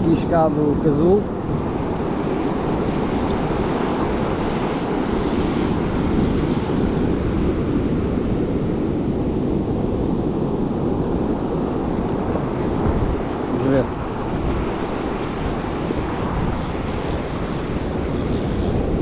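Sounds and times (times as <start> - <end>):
wind buffeting microphone: 0.0 - 19.0
faint high-pitched rasps: 5.1 - 7.0.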